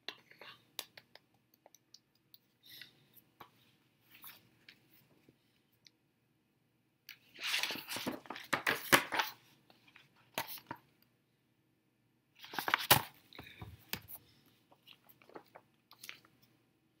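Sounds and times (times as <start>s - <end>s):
magazine pages rustling: 7.2s - 10.8s, 12.4s - 16.3s.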